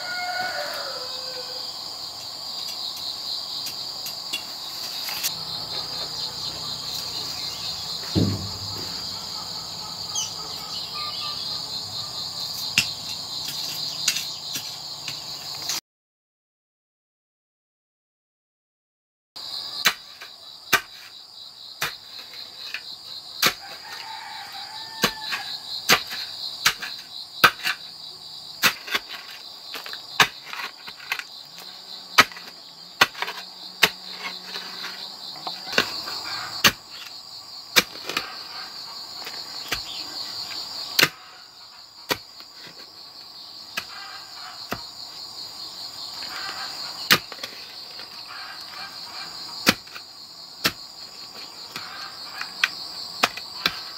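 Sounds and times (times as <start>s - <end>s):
insects chorus: 0.0s - 15.8s, 19.4s - 53.9s
wooden pole thudding into soil: 8.0s - 9.1s.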